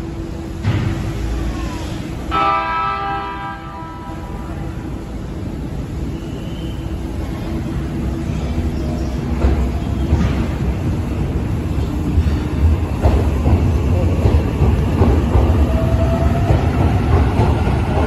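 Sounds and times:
train starting rumble: 0:00.0 - 0:18.0
train horn blast: 0:02.3 - 0:04.8.

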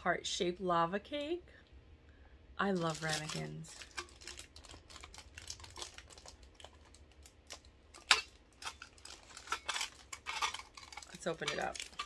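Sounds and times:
metal ramekin clicking and rustling: 0:02.8 - 0:12.0.

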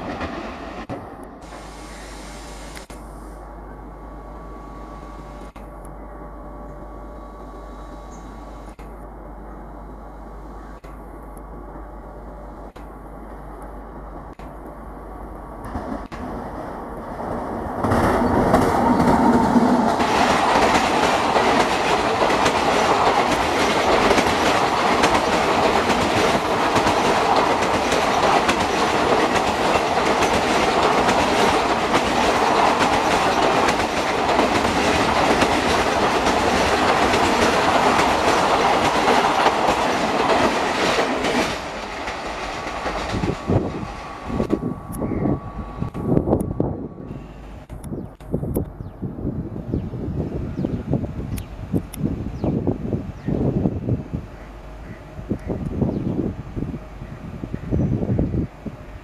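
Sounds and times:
electric locomotive passing: 0:00.0 - 0:59.0.

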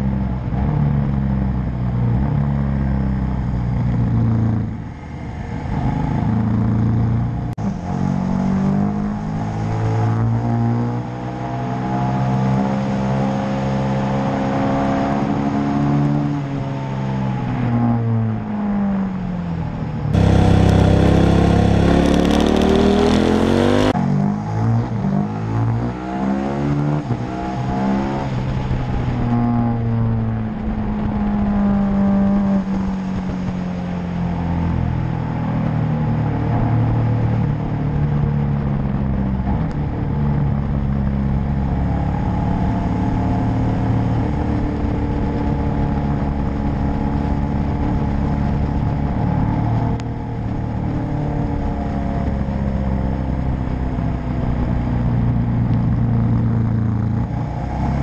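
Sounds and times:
motorcycle engine revving: 0:20.1 - 0:33.6
wind rushing over microphone: 0:27.0 - 0:35.5, 0:36.3 - 0:58.0.

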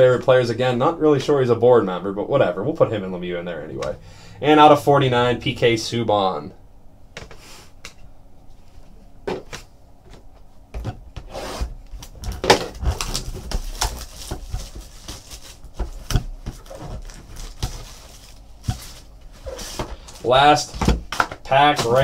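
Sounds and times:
cards and wrappers rustling: 0:11.9 - 0:22.0.

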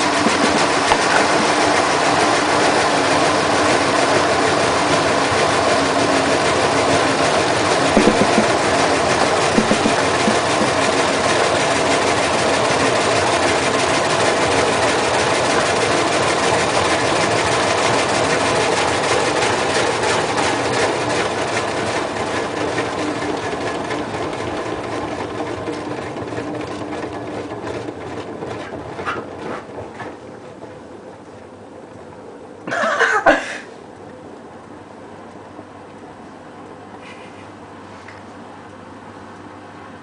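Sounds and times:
motor whine: 0:00.0 - 0:24.0
washing machine drum spinning: 0:00.0 - 0:33.0.

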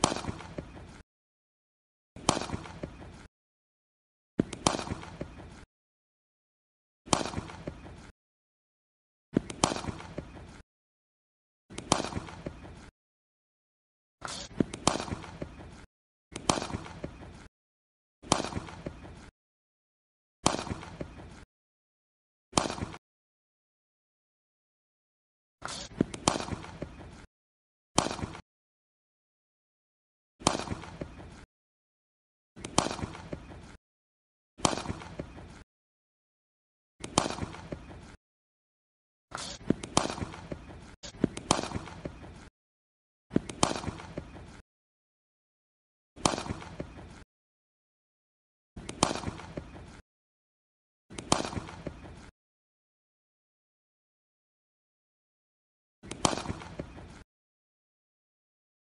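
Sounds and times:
cricket bat striking ball: 0:00.0 - 0:00.6.

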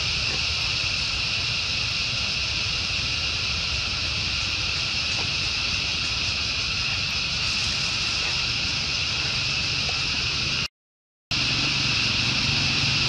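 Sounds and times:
high-pitched hiss: 0:00.0 - 0:10.7, 0:11.3 - 0:13.0.

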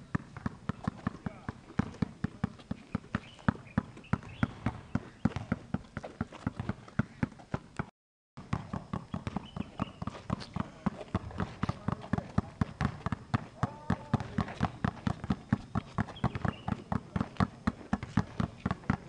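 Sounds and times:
basketballs dribbled on asphalt: 0:00.0 - 0:19.0.

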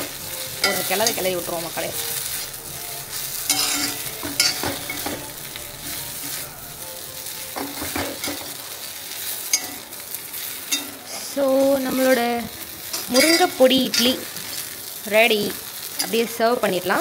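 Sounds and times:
food sizzling in oil: 0:00.0 - 0:17.0
spatula scraping pan: 0:00.6 - 0:06.5.

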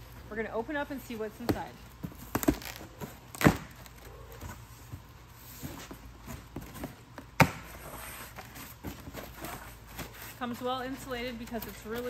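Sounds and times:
rustling of cardboard box: 0:01.4 - 0:12.0.

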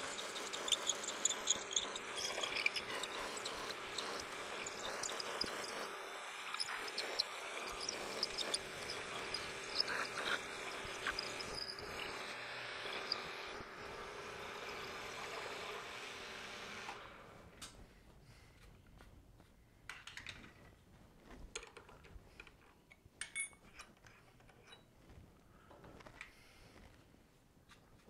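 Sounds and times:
drill cutting through metal: 0:00.0 - 0:17.3
metal chips clinking: 0:23.2 - 0:24.0.

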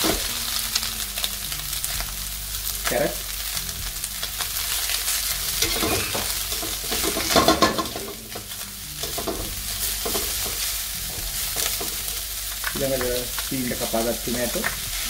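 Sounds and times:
vegetables sizzling in hot oil: 0:00.0 - 0:15.0
spatula scraping metal pan: 0:05.5 - 0:12.1.

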